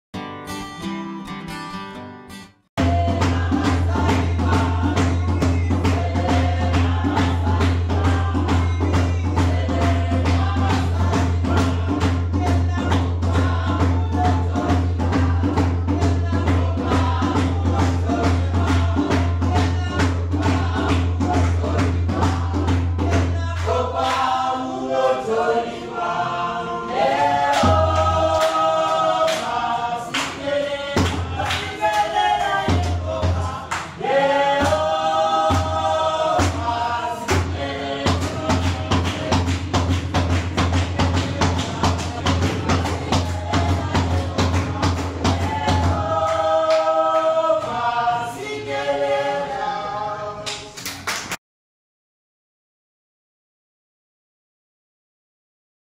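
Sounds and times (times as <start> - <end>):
steady percussive beat: 2.8 - 25.0, 26.9 - 48.7
group singing together: 2.8 - 51.3.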